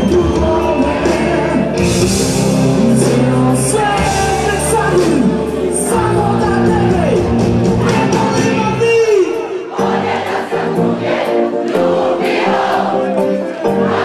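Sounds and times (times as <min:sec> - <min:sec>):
man singing: 0:00.0 - 0:09.7
keyboards: 0:00.0 - 0:14.0.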